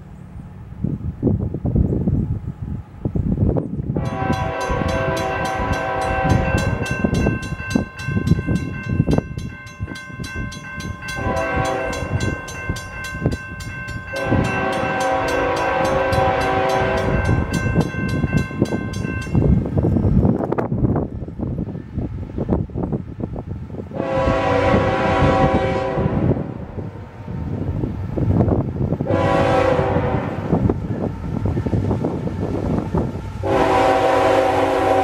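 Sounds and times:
wind buffeting microphone: 0:00.0 - 0:35.0
locomotive horn blasts: 0:04.0 - 0:07.2, 0:11.0 - 0:12.4, 0:14.1 - 0:17.6, 0:23.9 - 0:26.7, 0:29.0 - 0:30.6, 0:33.4 - 0:35.0
crossing bell ringing: 0:04.0 - 0:19.7.

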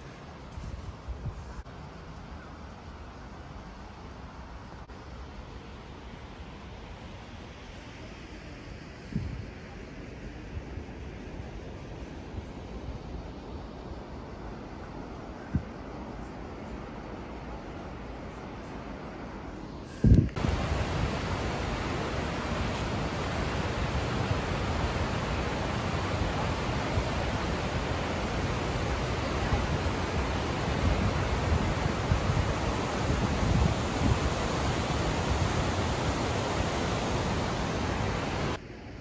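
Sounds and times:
waterfall rushing: 0:20.4 - 0:38.6.

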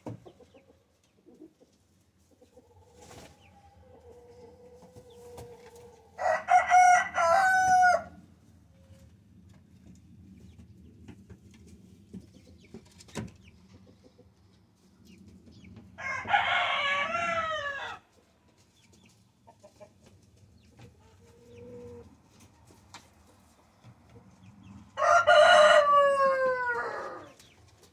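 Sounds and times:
hens clucking softly: 0:00.1 - 0:06.3, 0:10.3 - 0:16.0, 0:17.3 - 0:25.0
rooster crowing: 0:06.0 - 0:08.2, 0:16.0 - 0:18.0, 0:25.0 - 0:27.4.

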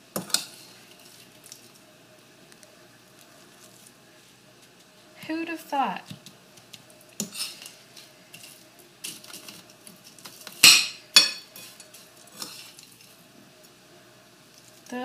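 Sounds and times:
metal utensil scraping pie dish: 0:07.2 - 0:07.7.

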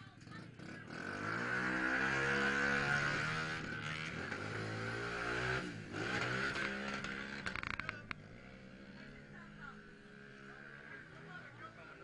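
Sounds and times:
pit bike engine revving: 0:00.5 - 0:12.0
sharp clicks: 0:07.4 - 0:08.2.

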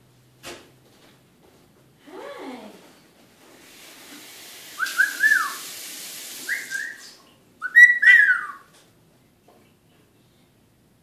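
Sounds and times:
faint steady hiss: 0:02.0 - 0:11.0
parrot whistling: 0:04.8 - 0:05.6, 0:06.4 - 0:08.7.

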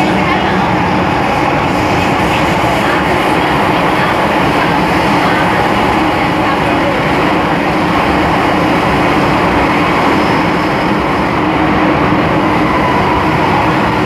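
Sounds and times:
subway train wheels rumbling: 0:00.0 - 0:14.0.

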